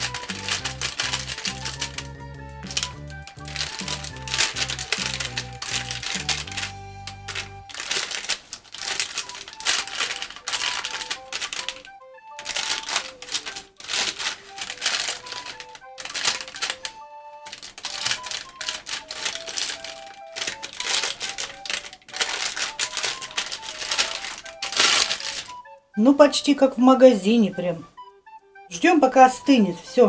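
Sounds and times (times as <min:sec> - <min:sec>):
crisp crackling and rustling: 0:00.0 - 0:26.2
light melody: 0:00.0 - 0:30.0.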